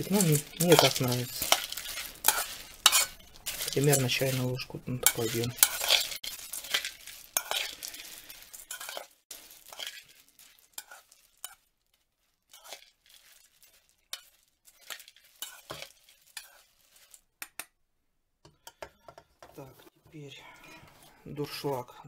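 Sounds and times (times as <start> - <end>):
spoon scraping seeds in metal pot: 0.0 - 17.3.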